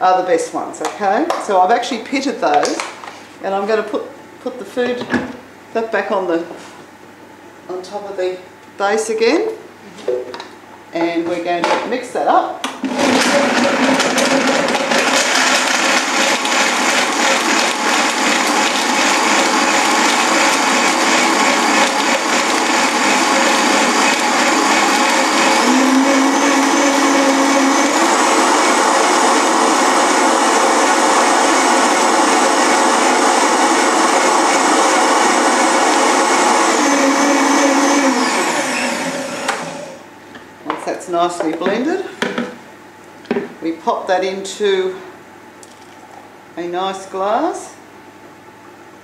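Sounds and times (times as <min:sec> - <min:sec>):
blender motor running: 0:12.8 - 0:40.0.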